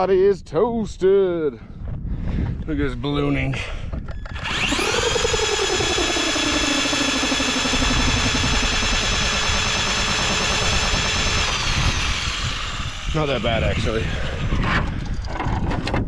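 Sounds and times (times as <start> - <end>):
electric motor whining: 4.1 - 16.0.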